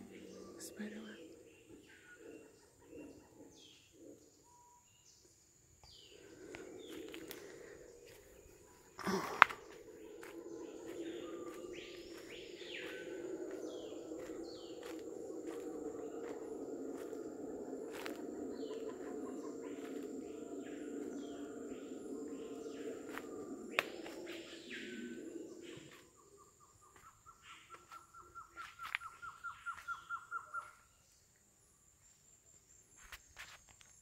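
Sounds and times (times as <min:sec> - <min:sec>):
howler monkeys roaring: 0:06.0 - 0:26.8
footsteps on trail: 0:06.5 - 0:08.4, 0:09.0 - 0:19.1, 0:28.6 - 0:30.1
high insect buzz: 0:11.0 - 0:18.9.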